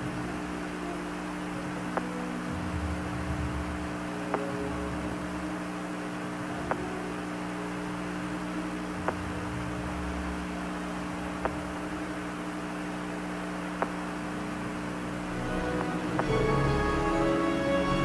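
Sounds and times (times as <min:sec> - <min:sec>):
radio channel hiss and hum: 0:00.0 - 0:18.0
faint radio click: 0:09.0 - 0:09.3, 0:13.7 - 0:14.2.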